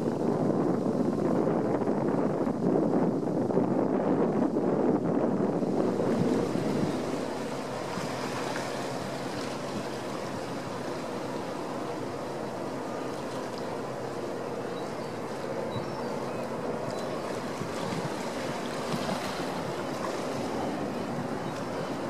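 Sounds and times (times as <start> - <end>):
water: 0.0 - 22.0
wind noise: 0.0 - 22.0
faint engine hum: 5.2 - 22.0.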